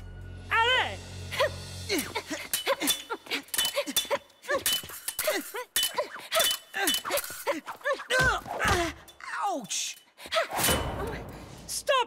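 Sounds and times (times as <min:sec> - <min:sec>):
fencing blades clashing: 0:01.9 - 0:11.0.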